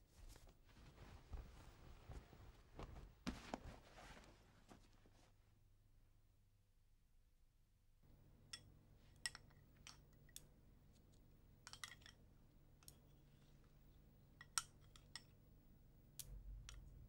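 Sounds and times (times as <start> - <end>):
low steady hum: 8.0 - 17.0.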